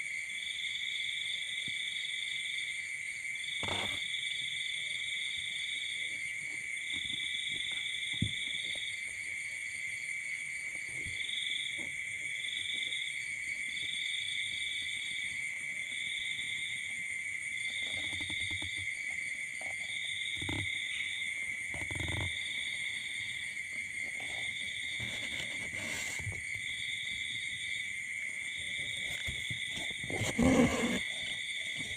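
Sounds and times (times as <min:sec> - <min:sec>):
insect high trill: 0:19.5 - 0:31.9.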